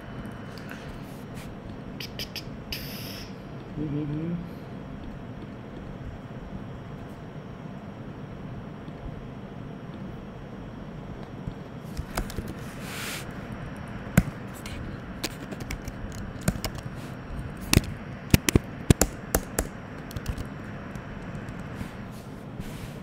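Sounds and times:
low background hum: 0:00.0 - 0:23.0
computer keyboard typing: 0:11.5 - 0:12.6, 0:14.2 - 0:17.0, 0:17.6 - 0:21.8.

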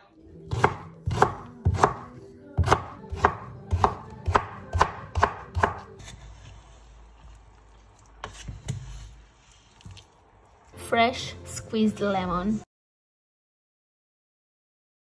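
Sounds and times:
knife chopping on wooden board: 0:00.5 - 0:06.2.

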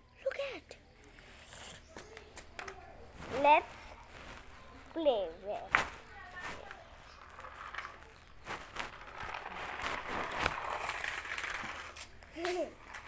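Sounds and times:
plastic wheels on concrete: 0:00.2 - 0:13.0
toy loader motor and gears: 0:07.0 - 0:13.0.

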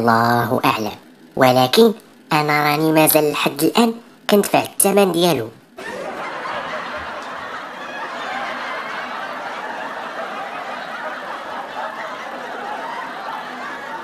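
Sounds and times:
canned laugh track: 0:05.8 - 0:14.0.

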